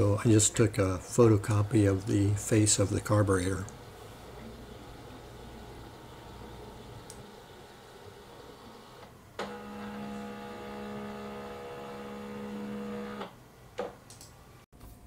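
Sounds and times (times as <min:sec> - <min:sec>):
scanner motor hum: 0:03.7 - 0:13.3.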